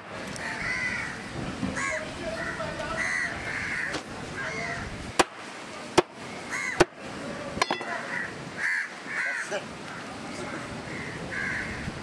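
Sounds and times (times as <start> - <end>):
crows cawing: 0.4 - 4.9, 6.4 - 6.9, 7.8 - 12.0.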